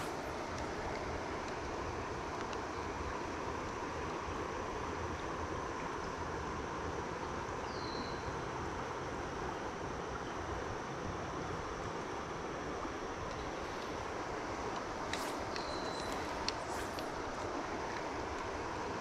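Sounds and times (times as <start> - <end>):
river rushing over a riffle: 0.0 - 7.5.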